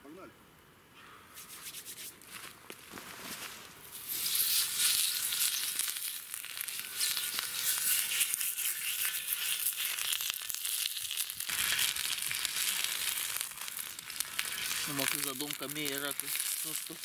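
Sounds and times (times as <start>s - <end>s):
fat sizzling on hot griddle: 3.9s - 17.0s.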